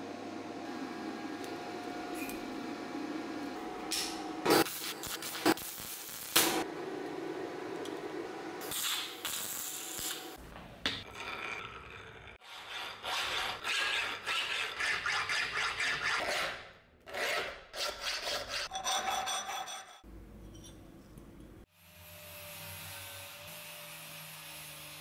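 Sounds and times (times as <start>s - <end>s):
file rasping on steel: 12.4s - 20.0s.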